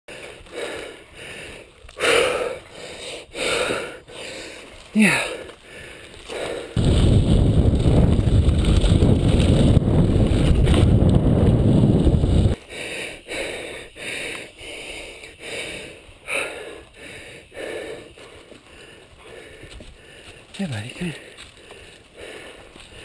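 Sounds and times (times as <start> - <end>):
bike tyres on dirt and gravel: 0.1 - 23.0
wind rumble on microphone: 6.8 - 12.6.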